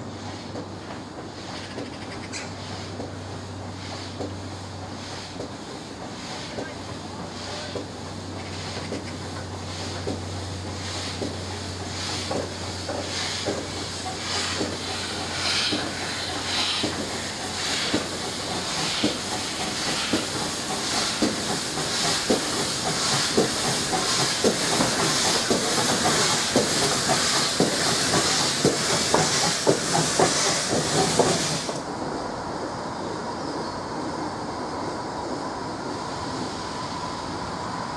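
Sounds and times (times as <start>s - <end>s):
steam locomotive exhaust beats: 0.0s - 33.2s
steam hissing: 2.4s - 32.5s.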